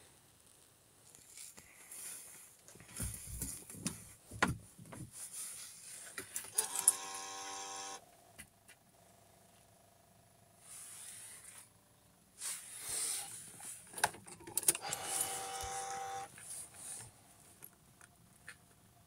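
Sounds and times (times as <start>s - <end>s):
faint steady hum: 0.0s - 19.0s
rustling and knocks: 2.7s - 5.4s
buzzing tone: 14.9s - 16.3s.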